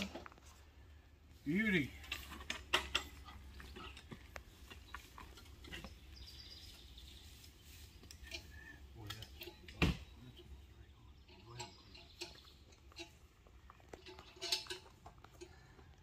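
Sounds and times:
metal gate clinks and knocks: 0:01.8 - 0:04.1, 0:08.0 - 0:10.6, 0:11.2 - 0:13.2, 0:14.0 - 0:15.5
faint bird chirping: 0:04.5 - 0:13.2.

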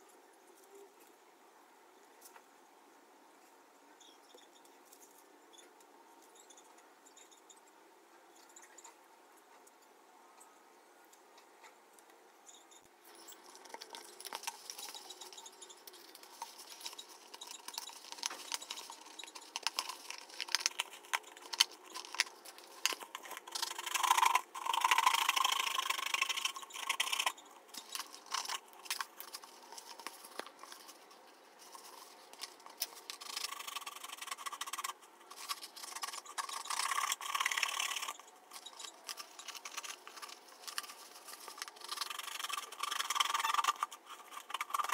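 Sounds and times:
stiff paper rustling: 0:13.1 - 0:44.9.

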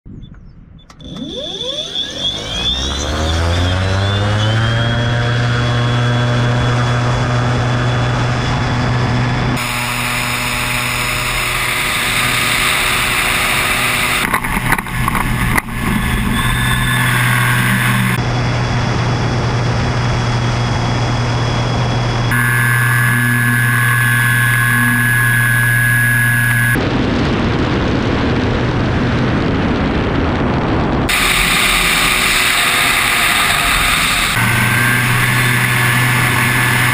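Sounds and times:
electric motor and propeller humming: 0:00.7 - 0:27.3, 0:31.1 - 0:36.9
wind rushing: 0:25.8 - 0:36.9.

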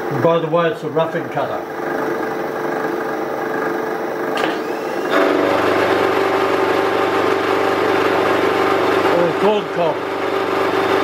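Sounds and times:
milling machine gears whining: 0:01.6 - 0:11.0
end mill cutting steel: 0:04.4 - 0:11.0.

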